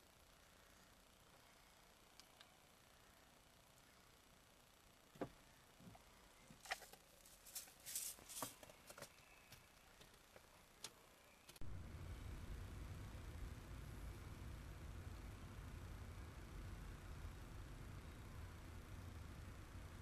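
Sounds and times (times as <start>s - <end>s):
short rustles of handling: 6.6s - 9.0s.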